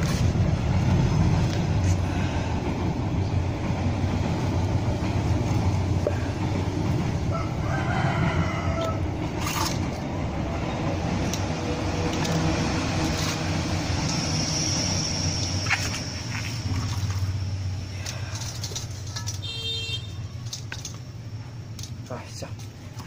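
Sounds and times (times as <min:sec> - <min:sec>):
rooster crowing: 0:07.2 - 0:09.2.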